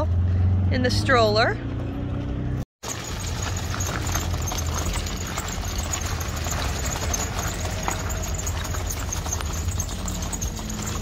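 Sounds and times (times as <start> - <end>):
footsteps crunching on gravel: 2.8 - 11.0
stroller wheels on gravel: 2.8 - 11.0.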